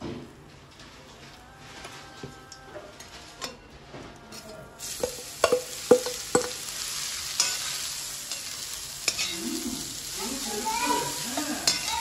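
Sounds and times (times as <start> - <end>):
cabbage sizzling in oil: 4.8 - 12.0.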